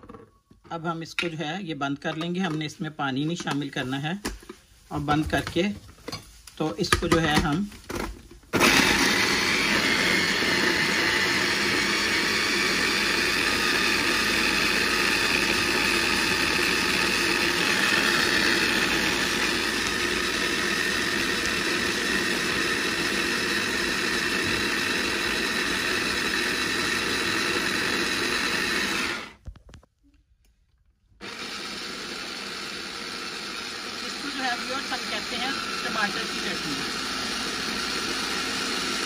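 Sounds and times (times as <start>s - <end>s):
electric food chopper grinding: 8.5s - 29.4s, 31.2s - 39.0s.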